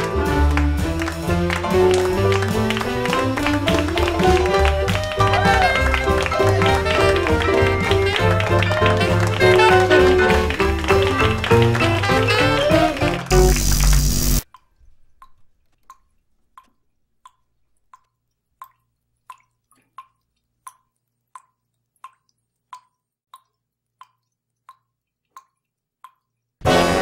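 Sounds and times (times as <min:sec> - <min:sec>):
music: 0:00.0 - 0:14.4, 0:26.6 - 0:27.0
water dripping from hand: 0:14.5 - 0:26.6.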